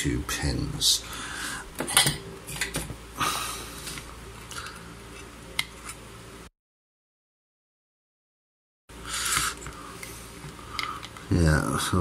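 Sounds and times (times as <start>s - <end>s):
fan humming: 0.0s - 6.5s, 8.9s - 12.0s.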